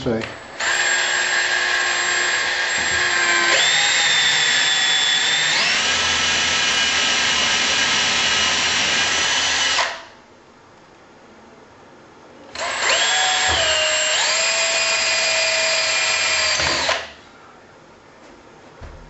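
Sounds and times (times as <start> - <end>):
power drill whining: 0.3 - 10.1, 12.6 - 17.2.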